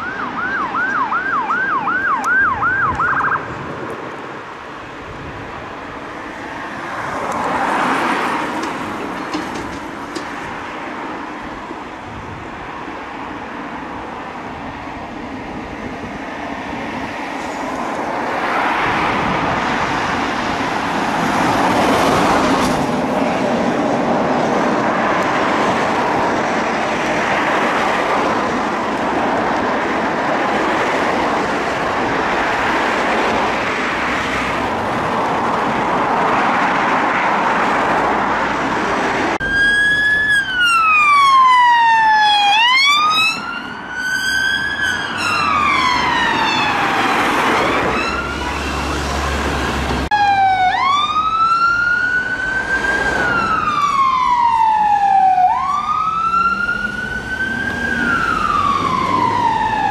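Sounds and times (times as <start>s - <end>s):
ambulance siren: 0.0s - 3.6s, 39.3s - 59.9s
police car wail siren: 0.0s - 3.7s, 39.3s - 59.9s
road traffic noise: 0.0s - 59.9s.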